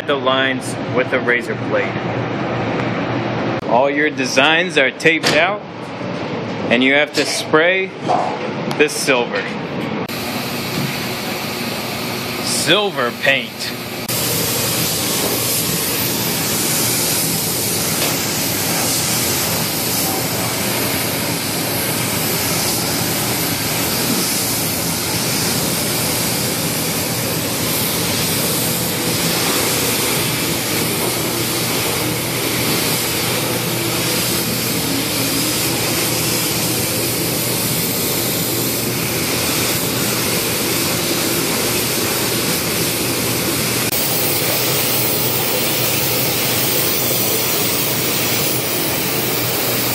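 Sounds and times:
spray gun hissing: 14.1s - 42.8s, 43.8s - 49.9s.

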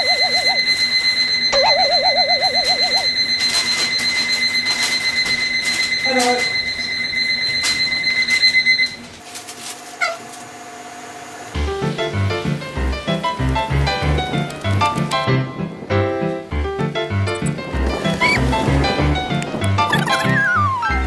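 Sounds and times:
alarm clock ringing: 0.0s - 9.0s.

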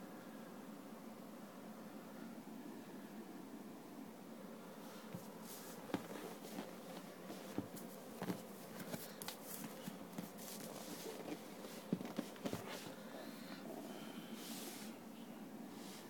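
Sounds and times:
low steady hiss: 0.0s - 16.0s
soft rustling: 4.8s - 13.7s.

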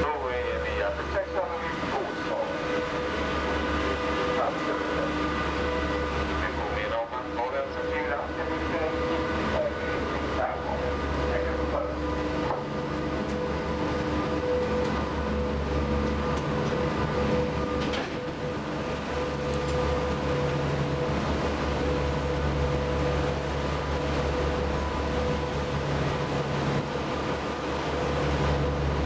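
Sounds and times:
boat engines droning: 0.0s - 29.0s.

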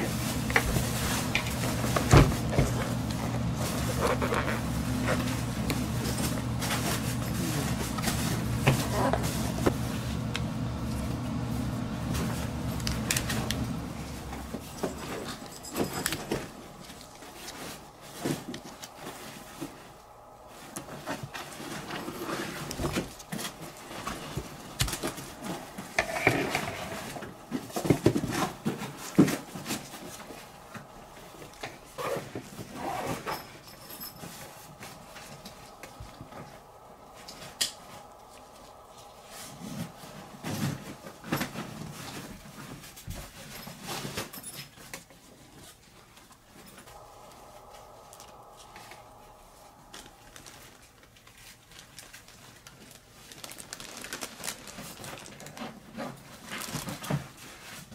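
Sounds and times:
faint steady hum: 0.0s - 57.9s.

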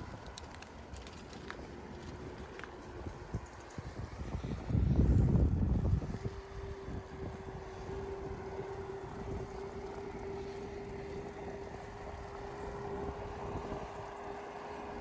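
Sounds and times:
steady hum: 0.0s - 15.0s
wind buffeting microphone: 0.0s - 15.0s.

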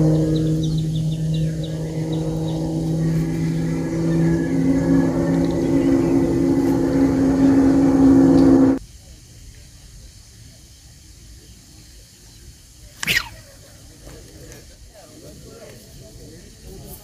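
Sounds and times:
motor engine running: 0.0s - 8.8s.

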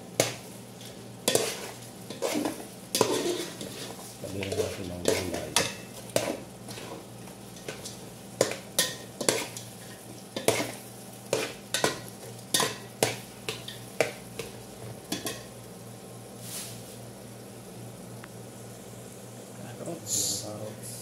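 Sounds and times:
faint sizzle: 0.0s - 21.0s
steady low hum: 0.0s - 21.0s
metal ladle scraping pot: 1.3s - 7.0s.

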